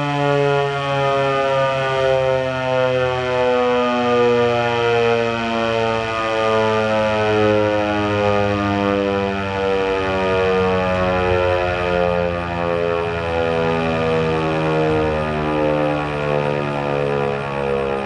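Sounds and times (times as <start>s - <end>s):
rotating warning siren steady tone: 0.0s - 18.0s.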